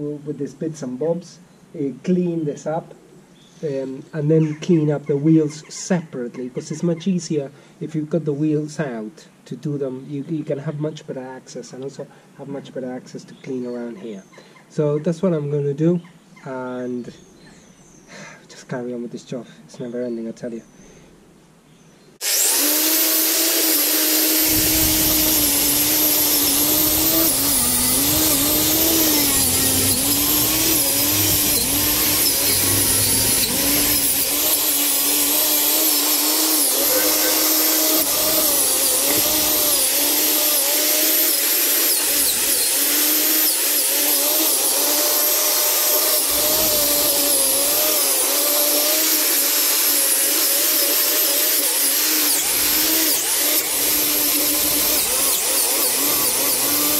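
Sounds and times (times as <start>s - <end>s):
angle grinder grinding metal: 22.2s - 56.9s.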